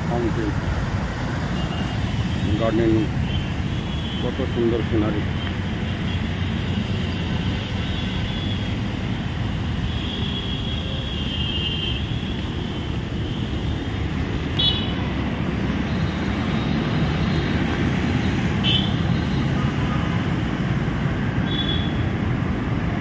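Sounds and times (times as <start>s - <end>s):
city traffic rumble: 0.0s - 23.0s
vehicle horns honking: 9.9s - 12.5s, 14.6s - 15.0s, 18.6s - 19.3s, 21.4s - 22.1s.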